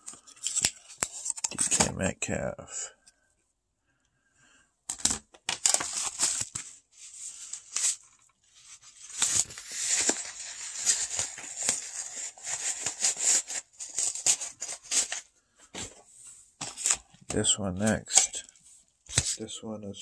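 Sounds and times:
paper and plastic crinkling: 4.9 - 19.4.

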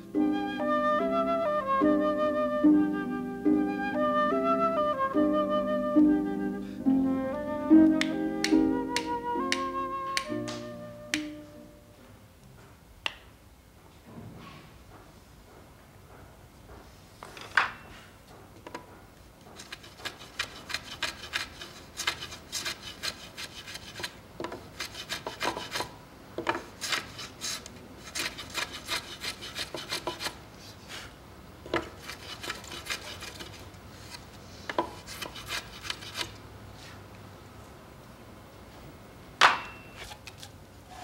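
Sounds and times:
hand plane rasping wood: 19.6 - 30.4, 31.8 - 33.7, 34.8 - 36.3.

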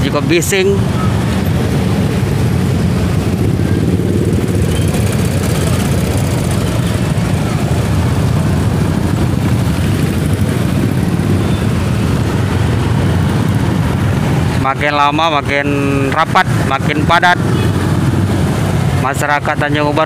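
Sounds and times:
traffic jam engines idling: 0.0 - 20.0.

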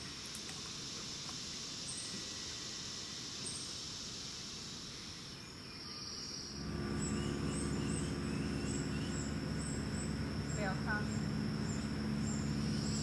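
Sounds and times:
low steady hum: 6.5 - 13.0.

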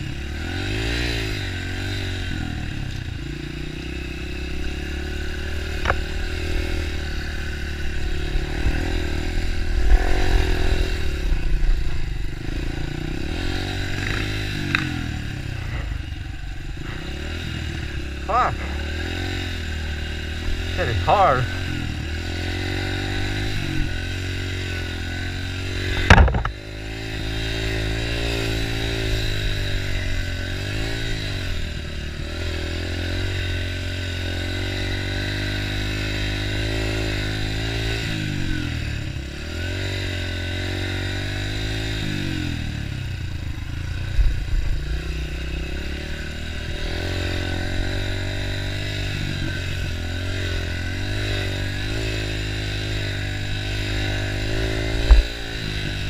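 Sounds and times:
dirt bike engine revving: 0.0 - 56.0
sharp loud thump: 25.9 - 26.6.

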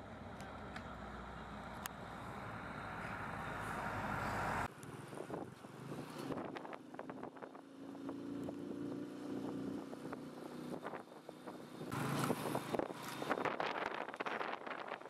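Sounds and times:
vehicle engine running: 0.0 - 14.9
wind buffeting microphone: 5.0 - 15.0.

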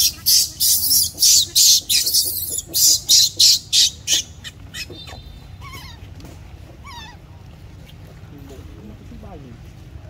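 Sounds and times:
baby monkey screeching: 0.0 - 6.0, 6.8 - 7.2
wavering squeals: 0.0 - 6.0.

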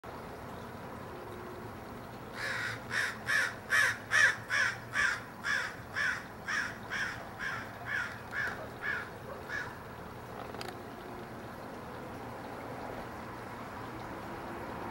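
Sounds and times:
crows cawing: 2.4 - 9.8.

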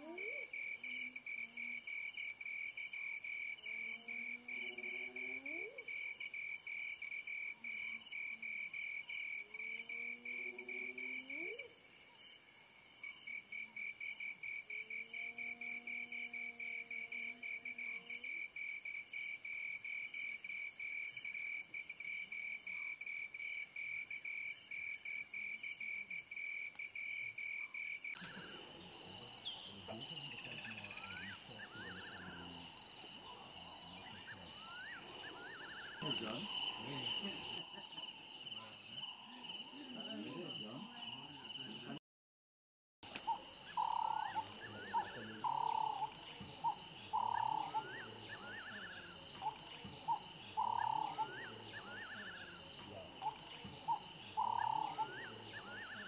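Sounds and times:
crickets chirping: 0.0 - 42.0, 43.0 - 56.0
insect drone: 0.0 - 42.0, 43.1 - 56.0
short bird calls: 34.0 - 37.6.

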